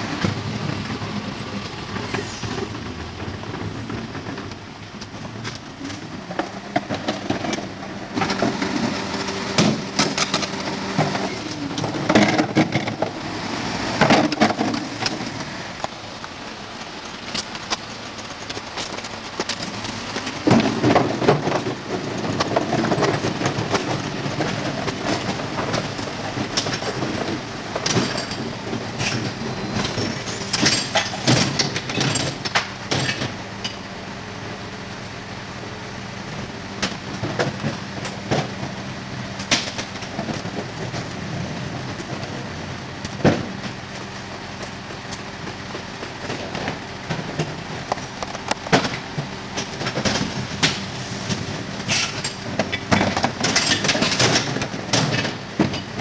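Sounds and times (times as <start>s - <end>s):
garbage truck engine and hydraulics: 0.0s - 56.0s
metal clanking and rattling: 17.3s - 33.9s, 46.2s - 56.0s.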